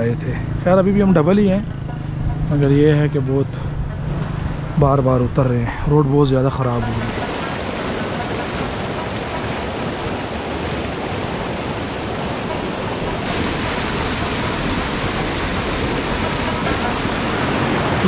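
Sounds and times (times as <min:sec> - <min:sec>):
stream rushing over rocks: 0:06.8 - 0:18.0.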